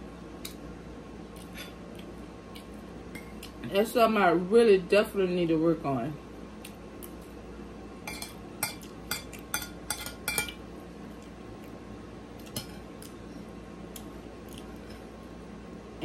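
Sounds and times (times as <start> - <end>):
spoon clinking on ceramic plate: 8.1 - 10.6.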